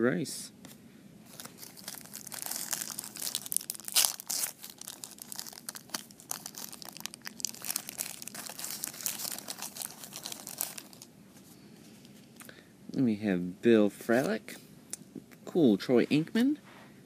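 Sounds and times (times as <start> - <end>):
plastic wrapper crinkling: 1.3 - 11.1.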